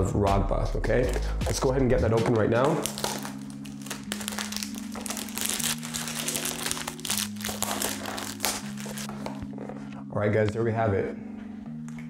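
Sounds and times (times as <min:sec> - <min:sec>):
background music low chords: 0:00.0 - 0:12.0
cardboard box crinkling: 0:02.8 - 0:09.6.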